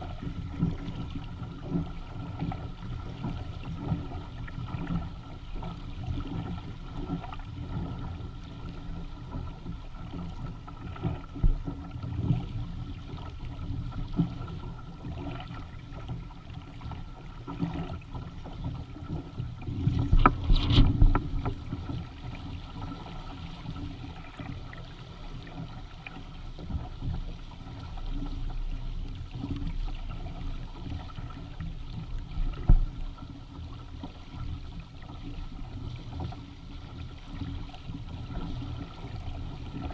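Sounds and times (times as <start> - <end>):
water splashing along hull: 0.0 - 39.9
wind rumble on microphone: 0.0 - 39.9.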